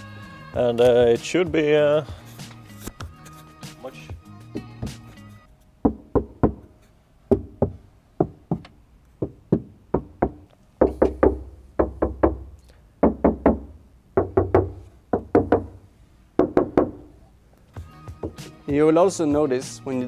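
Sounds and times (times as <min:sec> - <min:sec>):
knuckles knocking on car door: 0:07.3 - 0:12.4, 0:13.0 - 0:15.8, 0:16.4 - 0:17.1.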